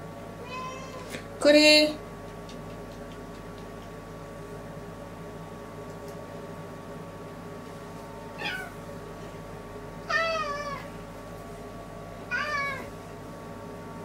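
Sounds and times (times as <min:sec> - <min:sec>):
cat meowing: 0:00.4 - 0:01.1, 0:08.4 - 0:08.8, 0:10.1 - 0:10.9, 0:12.3 - 0:12.9.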